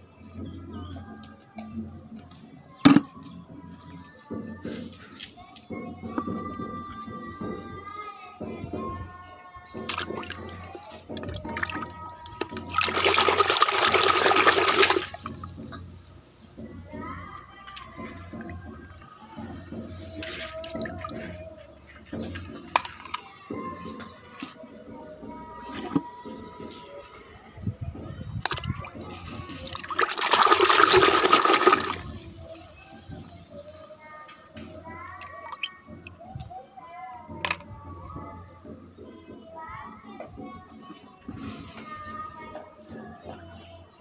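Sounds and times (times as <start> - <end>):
water splashing in plastic bucket: 9.8 - 19.0, 19.8 - 21.4, 28.4 - 36.2
hand splashing in soapy water: 12.5 - 16.1, 28.5 - 33.2.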